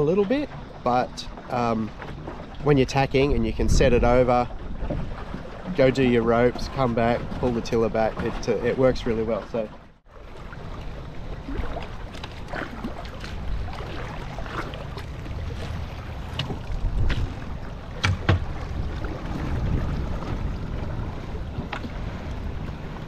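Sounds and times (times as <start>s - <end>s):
wind buffeting microphone: 0.0s - 9.6s, 10.4s - 23.0s
water lapping and splashing: 0.0s - 23.0s
slaps and knocks on boat: 12.1s - 19.0s, 21.6s - 22.0s.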